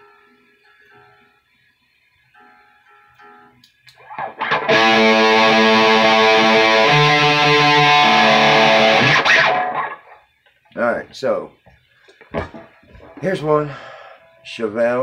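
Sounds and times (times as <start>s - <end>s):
soft plucked guitar notes: 4.0s - 10.1s
distorted electric guitar chords: 4.0s - 10.2s.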